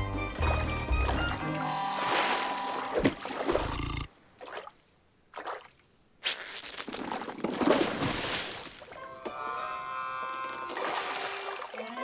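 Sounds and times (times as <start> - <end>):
splashing water wash: 0.6 - 3.7
cartoon water splash: 1.7 - 3.6.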